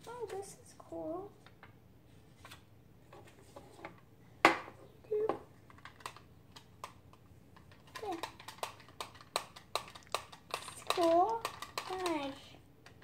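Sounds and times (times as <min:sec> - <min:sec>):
plastic toy clicking: 0:05.8 - 0:07.0, 0:07.6 - 0:13.0
small clatter: 0:07.6 - 0:13.0.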